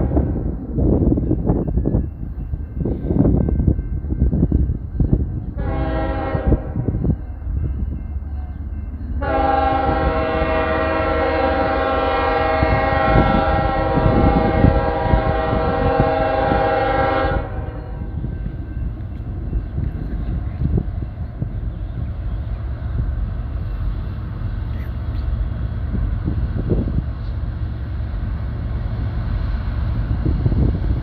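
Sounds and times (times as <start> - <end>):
train rumbling: 0.0 - 31.0
train horn blasts: 5.5 - 7.2, 9.2 - 18.4.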